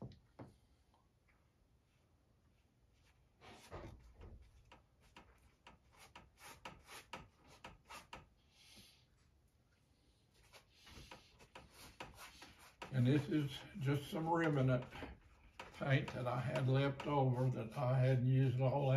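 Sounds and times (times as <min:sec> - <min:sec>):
hand rubbing paint on canvas: 0:10.3 - 0:18.9.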